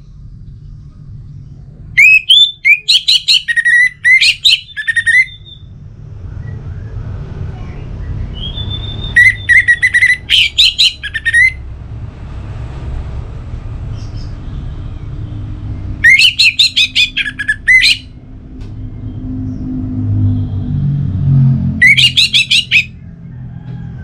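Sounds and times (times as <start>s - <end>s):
low background rumble: 0.0s - 24.0s
thrush singing: 7.9s - 11.8s, 13.8s - 18.2s, 21.7s - 23.0s.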